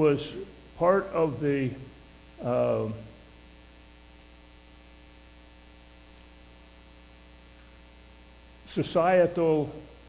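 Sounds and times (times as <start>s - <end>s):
electrical mains hum: 0.0s - 10.0s
spoken word: 2.4s - 3.0s.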